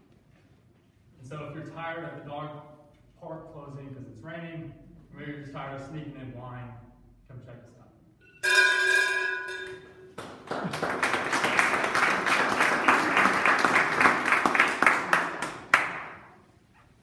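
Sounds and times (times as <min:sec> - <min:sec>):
people clapping: 0:09.6 - 0:16.4.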